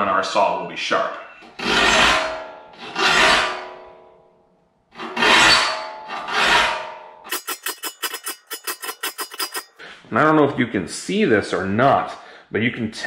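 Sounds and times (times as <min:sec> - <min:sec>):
file rasping on saw teeth: 0:07.3 - 0:09.8.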